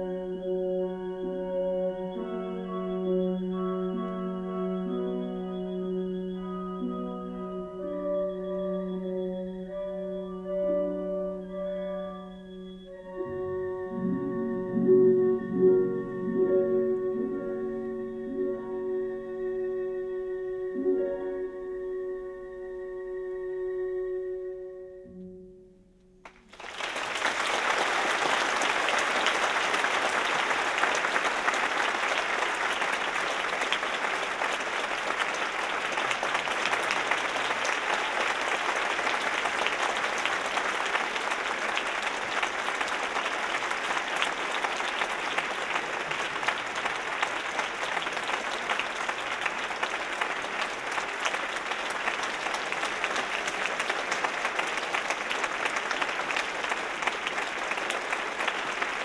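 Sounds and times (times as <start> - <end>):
audience applauding: 26.2 - 59.0.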